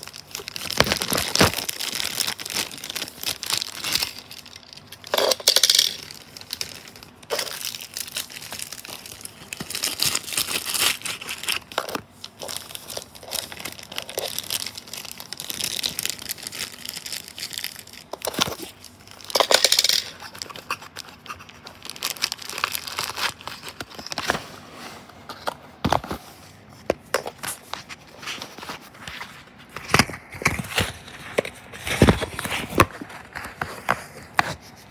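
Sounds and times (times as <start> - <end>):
plastic wrapping crinkling: 0.0 - 24.5.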